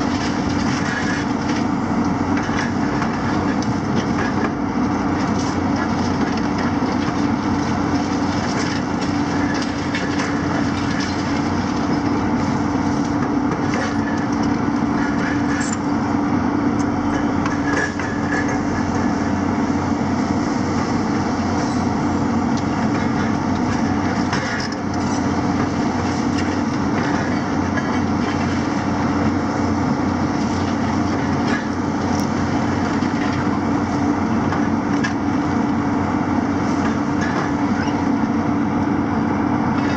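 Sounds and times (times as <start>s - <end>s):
excavator diesel engines running: 0.0s - 39.9s
rubble and scrap clinking: 16.8s - 19.5s.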